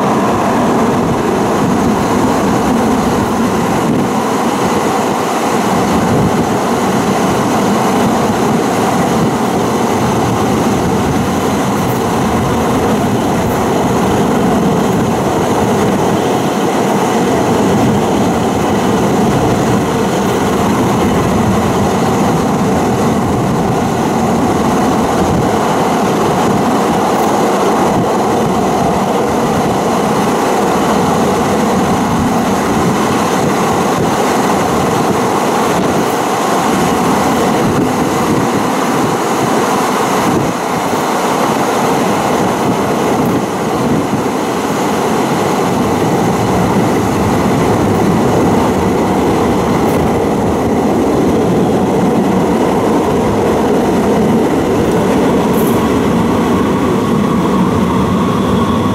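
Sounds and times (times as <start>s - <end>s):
steel wheels rumbling on rails: 0.0s - 58.9s.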